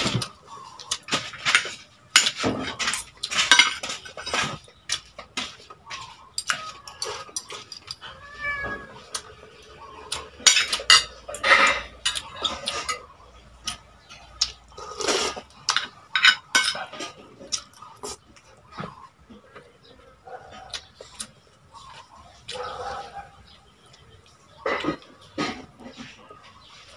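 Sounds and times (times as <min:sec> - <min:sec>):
fork and spoon clinking on plates: 0:00.0 - 0:08.2, 0:10.1 - 0:13.8, 0:15.3 - 0:17.8.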